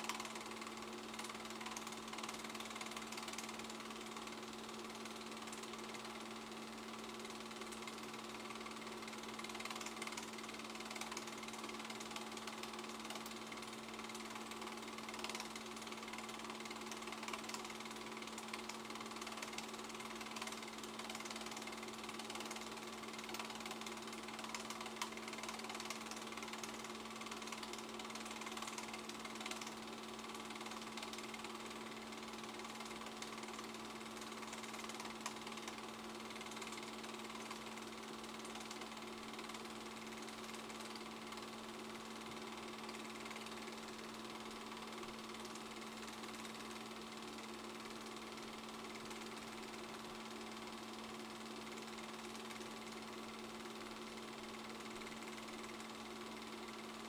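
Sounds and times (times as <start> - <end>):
film projector clattering: 0.0 - 57.0.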